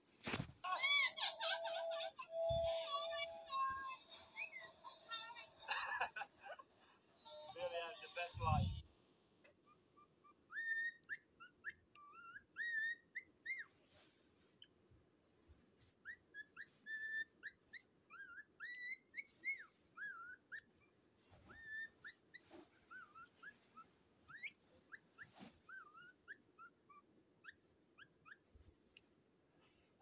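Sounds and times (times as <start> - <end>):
cockatiels chirping: 0.7 - 5.6, 9.7 - 13.8, 16.0 - 28.5.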